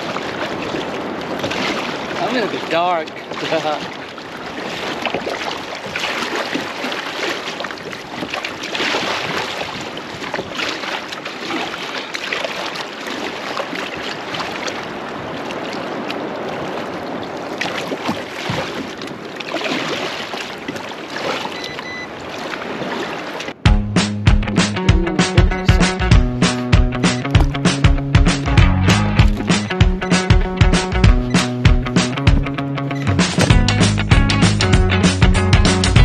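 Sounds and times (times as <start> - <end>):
water rushing: 0.0 - 23.7, 24.3 - 36.0.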